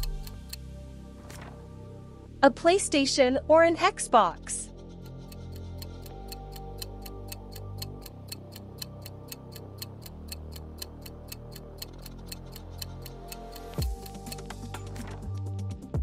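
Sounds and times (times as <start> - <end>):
countdown timer ticking: 0.0 - 0.6, 5.0 - 14.9
quiet background music: 0.0 - 16.0.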